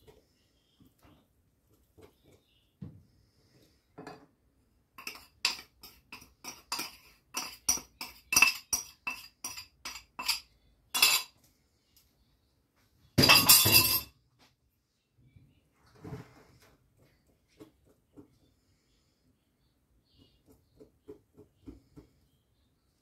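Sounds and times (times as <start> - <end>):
whisk clinking against glass bowl: 5.0 - 10.4.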